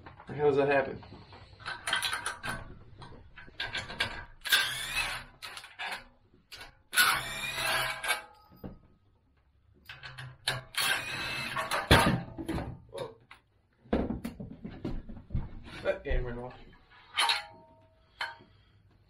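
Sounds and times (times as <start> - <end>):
power tool running: 4.5 - 5.6, 7.0 - 8.1, 10.7 - 11.8.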